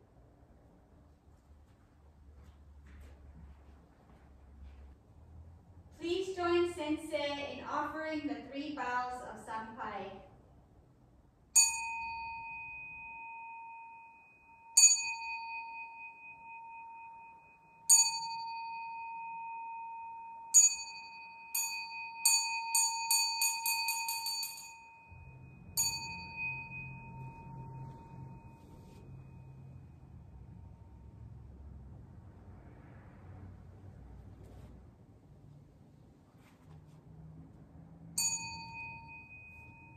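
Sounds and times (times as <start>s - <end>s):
temple bell strikes: 20.6s - 30.1s.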